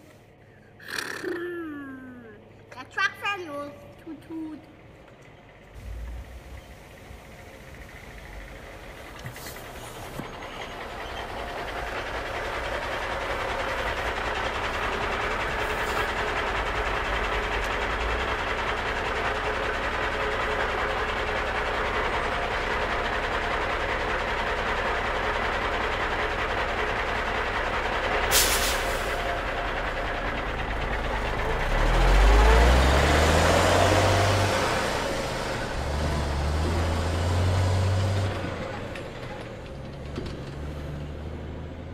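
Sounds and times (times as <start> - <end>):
truck rumble and hiss: 5.6 - 41.6
engine revving: 30.3 - 41.9.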